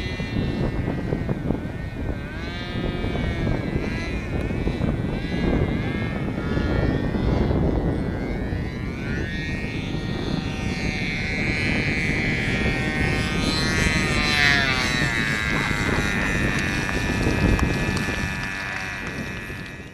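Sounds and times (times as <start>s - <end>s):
model airplane engine buzzing: 0.0s - 19.9s.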